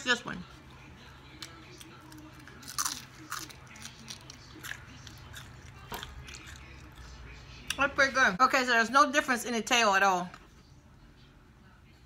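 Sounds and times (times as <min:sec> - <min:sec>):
chewing: 0:00.6 - 0:07.8
crunching bites of fried fish: 0:01.3 - 0:07.0.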